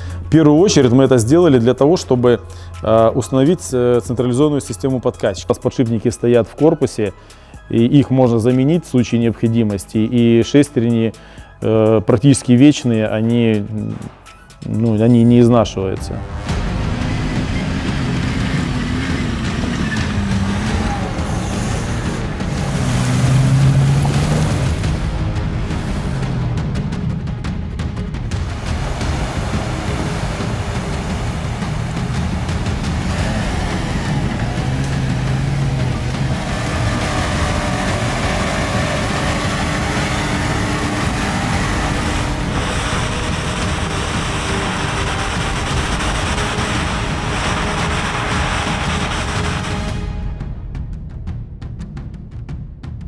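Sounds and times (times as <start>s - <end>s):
car engine revving: 16.0s - 50.3s
tyres churning through mud: 16.6s - 25.1s, 28.4s - 49.9s.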